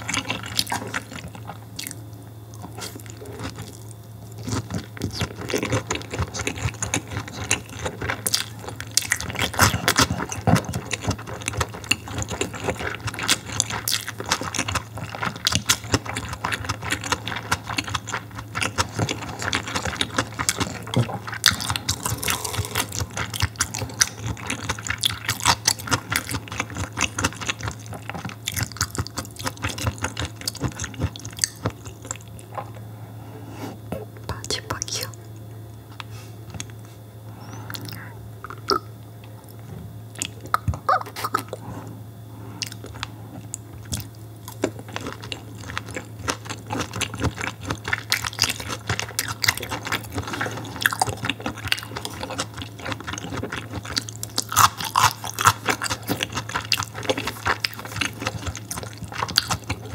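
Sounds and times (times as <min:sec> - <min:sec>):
wet chewing mouth clicks: 0:00.0 - 0:32.8, 0:37.7 - 0:41.6, 0:42.6 - 0:59.9
low steady hum: 0:00.0 - 0:59.9.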